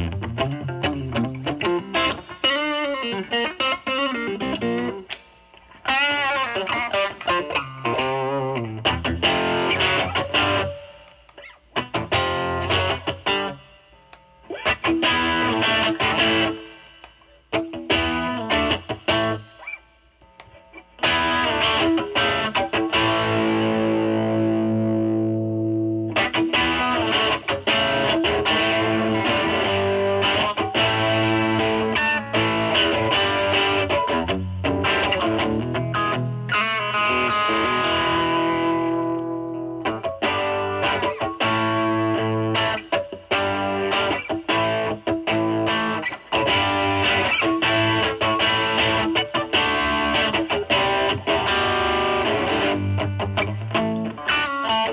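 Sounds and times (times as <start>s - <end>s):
distorted electric guitar playing: 0.0s - 54.9s.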